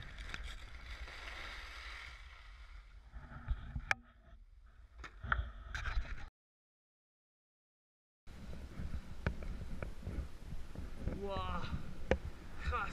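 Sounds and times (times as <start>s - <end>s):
wind rumbling on microphone: 8.3s - 12.9s.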